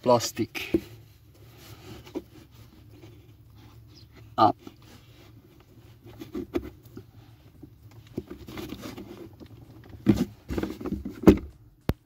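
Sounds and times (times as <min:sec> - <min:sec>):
plastic trim scraping and rustling: 0:07.9 - 0:11.4.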